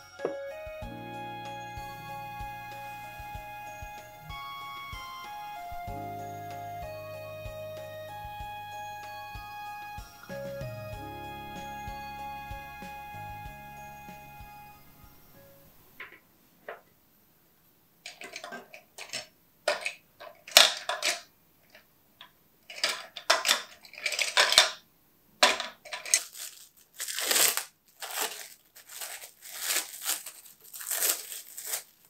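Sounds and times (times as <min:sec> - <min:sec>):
metal cookie cutters clattering: 0:18.1 - 0:21.3, 0:22.7 - 0:24.8, 0:25.4 - 0:31.9
cling wrap rustling: 0:25.4 - 0:32.0.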